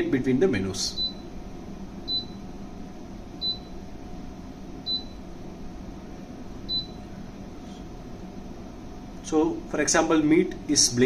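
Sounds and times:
short high beeps: 0:02.1 - 0:02.4, 0:03.4 - 0:03.7, 0:06.7 - 0:07.0.

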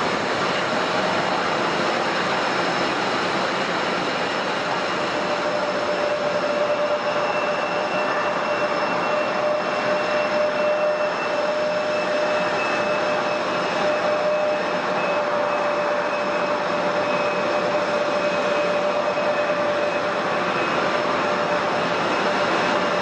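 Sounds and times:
aircraft engine whine: 0:00.0 - 0:23.0
broad rush of noise: 0:00.0 - 0:23.0.

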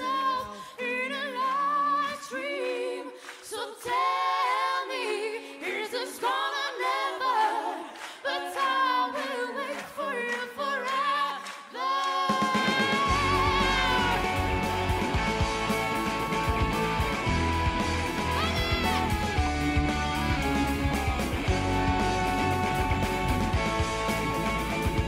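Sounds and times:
voices singing in harmony: 0:00.0 - 0:20.8
instrumental music with bass: 0:13.0 - 0:25.0.

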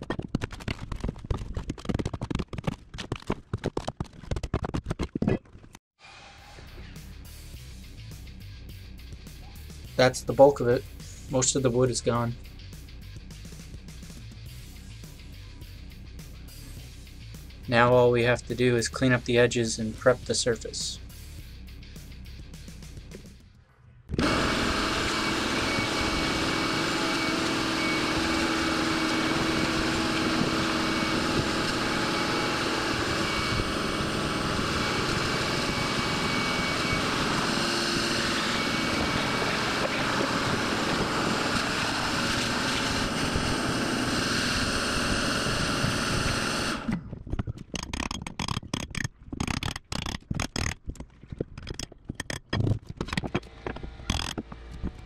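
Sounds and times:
shop vacuum running: 0:24.2 - 0:47.0.

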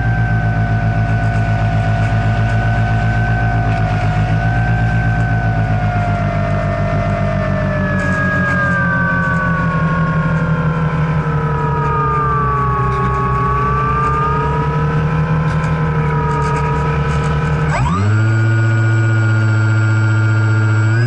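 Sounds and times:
model plane motor whining: 0:00.0 - 0:21.0.

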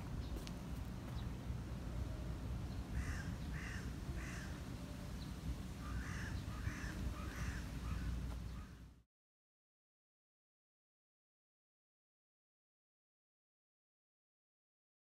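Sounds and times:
crow cawing: 0:03.0 - 0:04.6, 0:05.8 - 0:08.8.

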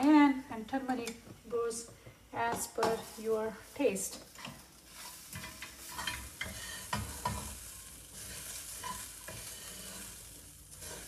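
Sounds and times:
food sizzling: 0:01.7 - 0:11.0
utensil scraping a pan: 0:04.4 - 0:11.0.

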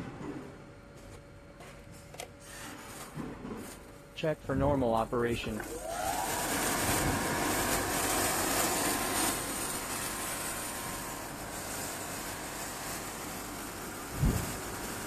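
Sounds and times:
electric blower whining: 0:05.6 - 0:15.0.

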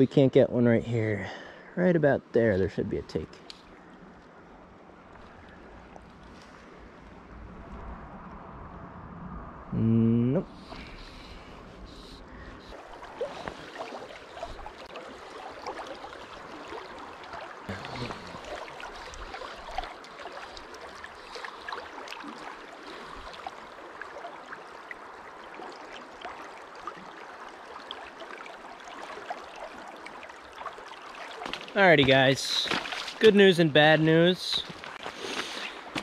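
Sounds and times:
river water babbling over rocks: 0:12.7 - 0:36.0.

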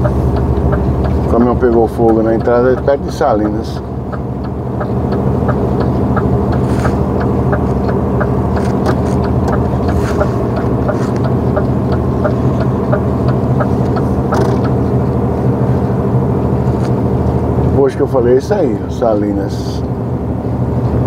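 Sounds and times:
light ticking: 0:00.0 - 0:15.2
truck engine droning: 0:00.0 - 0:21.0.

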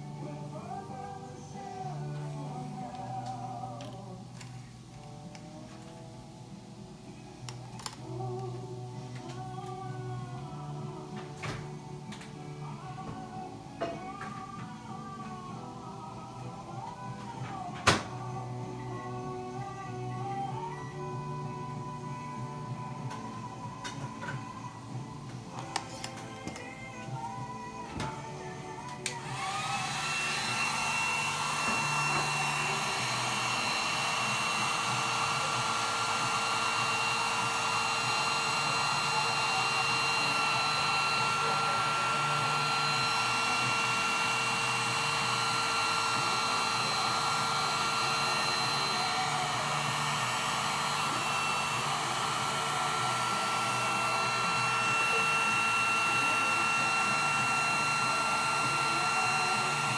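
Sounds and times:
fan motor whine: 0:00.0 - 0:59.9
heat gun blowing air: 0:29.1 - 0:59.9.

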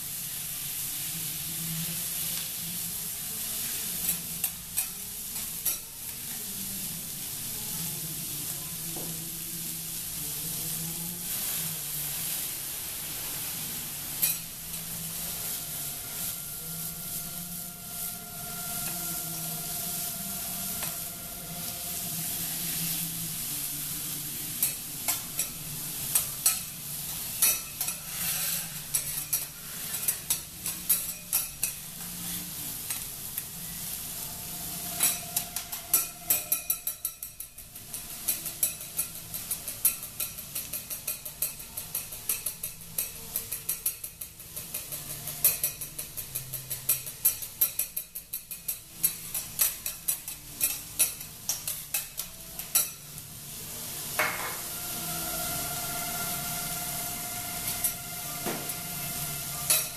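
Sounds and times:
food sizzling on griddle: 0:00.0 - 0:59.9
metal spatulas scraping and clacking: 0:04.0 - 0:05.9, 0:14.2 - 0:14.5, 0:24.6 - 0:33.5, 0:34.9 - 0:53.1, 0:54.2 - 0:59.9.

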